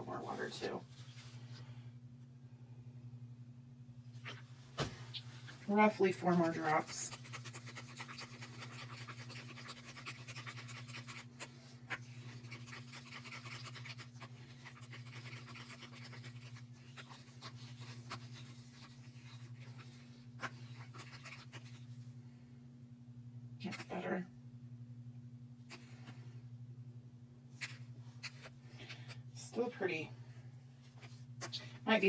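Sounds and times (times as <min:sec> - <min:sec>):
low hum: 0:00.0 - 0:32.0.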